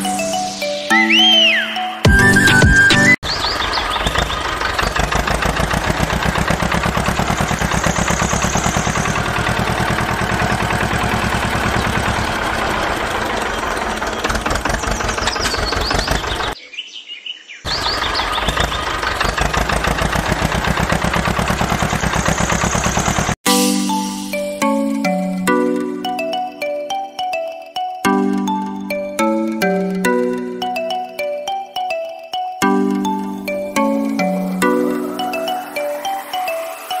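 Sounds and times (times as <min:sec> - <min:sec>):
tractor diesel engine chugging: 0:02.4 - 0:16.6, 0:17.7 - 0:23.4
faint bird chirps: 0:13.2 - 0:18.9.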